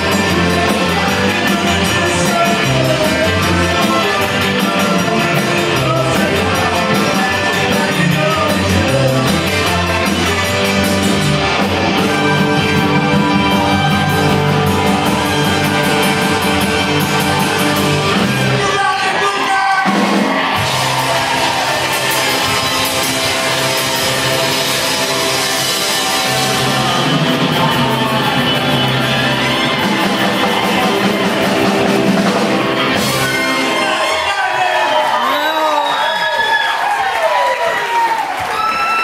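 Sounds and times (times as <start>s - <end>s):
person singing: 0.0s - 11.2s, 24.0s - 31.9s
rock band playing: 0.0s - 36.9s.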